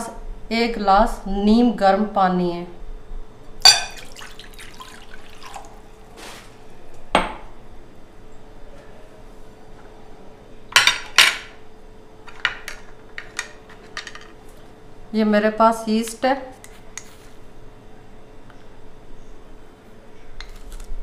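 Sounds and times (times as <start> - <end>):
glass and bowl clinking: 3.6 - 5.7.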